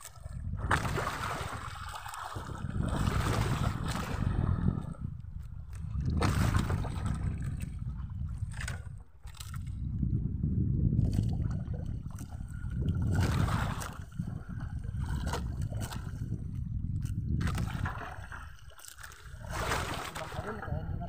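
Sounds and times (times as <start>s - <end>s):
low surging rumble: 0.0s - 21.0s
water sloshing against boat hull: 0.0s - 21.0s
knocks and scrapes: 17.3s - 20.6s.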